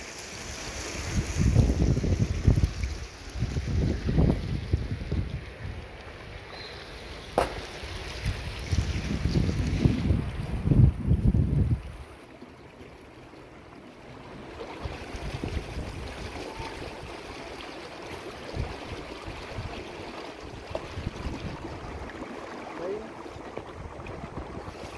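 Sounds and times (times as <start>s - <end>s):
wind buffeting microphone: 1.0s - 6.5s, 7.3s - 12.2s, 14.4s - 17.2s, 18.3s - 22.2s, 23.4s - 24.9s.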